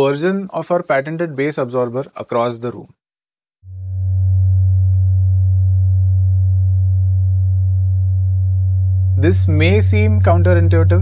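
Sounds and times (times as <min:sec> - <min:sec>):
low sine test tone: 0:03.6 - 0:11.0.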